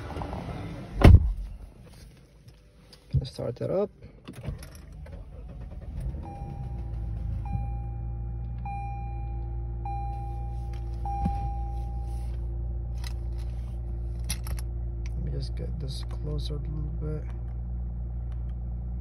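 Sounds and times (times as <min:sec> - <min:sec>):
car engine starting and idling: 0:00.0 - 0:19.0
dashboard warning chime: 0:06.1 - 0:12.4.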